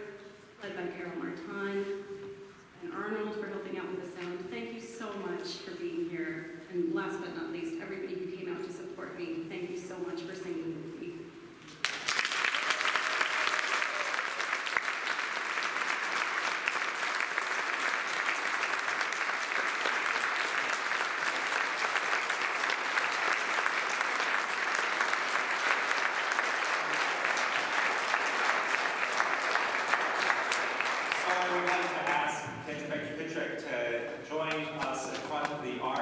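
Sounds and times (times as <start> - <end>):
people clapping: 11.7 - 32.9, 34.3 - 36.0.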